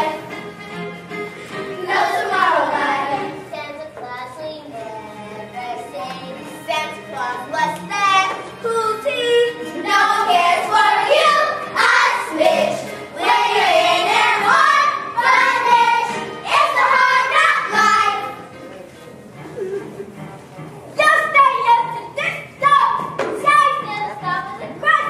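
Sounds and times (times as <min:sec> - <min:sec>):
children singing: 0:01.5 - 0:03.5, 0:05.2 - 0:18.4.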